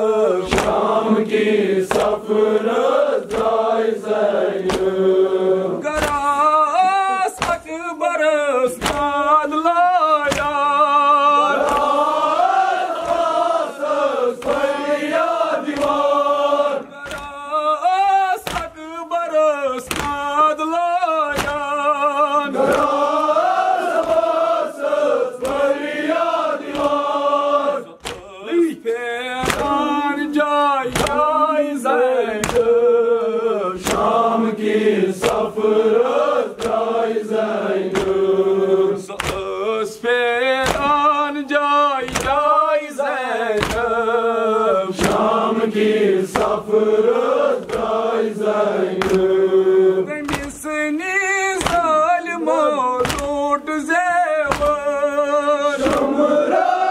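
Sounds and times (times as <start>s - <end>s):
mourners chanting: 0.0s - 56.9s
chest-beating slaps: 0.4s - 8.0s, 8.7s - 9.4s, 10.0s - 17.6s, 18.3s - 19.0s, 19.7s - 20.4s, 21.1s - 21.9s, 22.5s - 28.4s, 29.4s - 30.0s, 30.9s - 31.4s, 32.3s - 33.0s, 33.8s - 39.6s, 40.5s - 41.2s, 42.0s - 42.6s, 43.4s - 44.1s, 44.8s - 52.2s, 52.8s - 53.8s, 54.4s - 55.1s, 55.7s - 56.9s.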